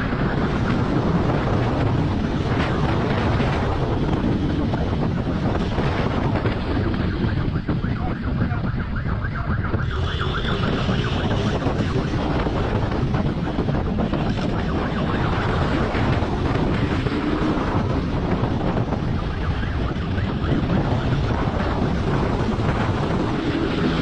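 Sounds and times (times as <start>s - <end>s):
wind buffeting microphone: 0.0s - 24.0s.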